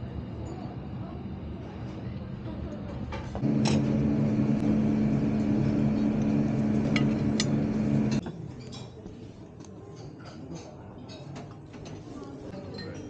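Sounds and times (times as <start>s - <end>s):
low machine hum: 3.4s - 8.2s.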